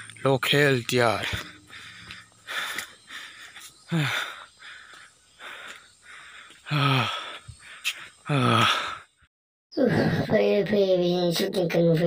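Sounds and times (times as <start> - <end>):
person breathing hard: 1.2 - 9.3
loud voiced exhalations: 6.6 - 7.4, 8.2 - 9.0.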